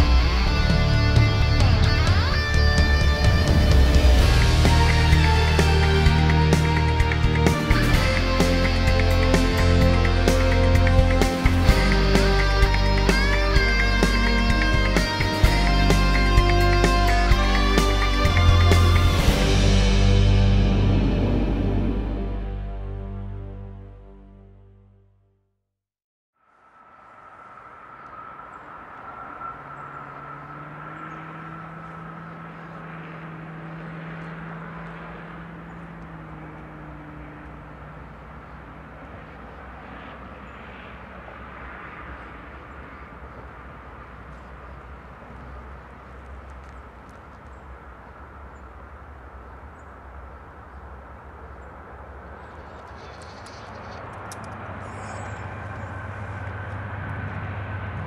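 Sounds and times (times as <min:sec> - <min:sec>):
distant diesel locomotive rumble: 0:00.0 - 0:23.0, 0:26.6 - 0:58.0
droning hum: 0:26.5 - 0:58.0.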